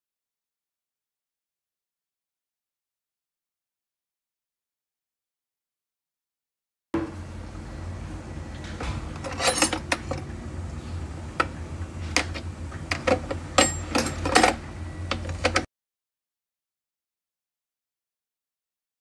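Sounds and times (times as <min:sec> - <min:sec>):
steady low hum: 0:07.0 - 0:15.7
kitchen utensils clattering: 0:08.8 - 0:10.3, 0:13.1 - 0:14.6.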